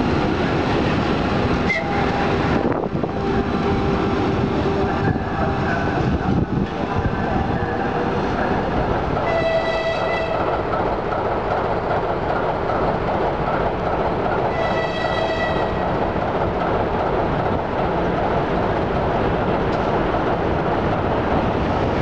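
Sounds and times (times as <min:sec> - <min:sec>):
train rumbling: 0:00.0 - 0:22.0
locomotive horn blasts: 0:01.6 - 0:05.6, 0:09.2 - 0:10.5, 0:14.5 - 0:15.8.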